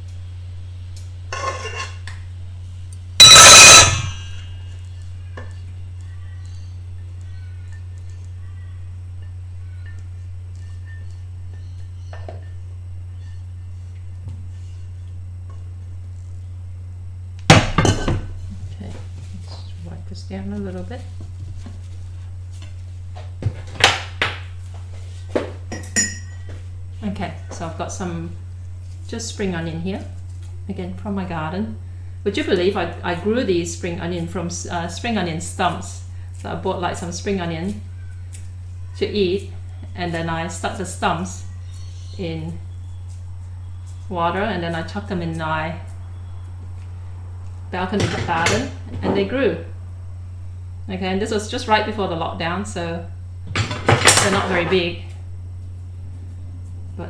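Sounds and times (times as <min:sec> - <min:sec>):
low hum: 0:00.0 - 0:57.0
spatula scraping a frying pan: 0:01.3 - 0:02.0
ringing clink: 0:25.7 - 0:26.4.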